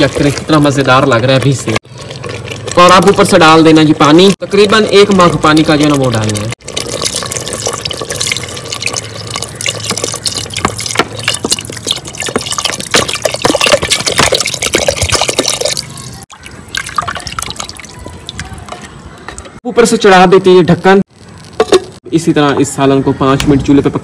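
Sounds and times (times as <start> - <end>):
spatula stirring in a pot: 0.0 - 3.6, 6.0 - 15.9
water pouring into a pot: 0.0 - 18.8.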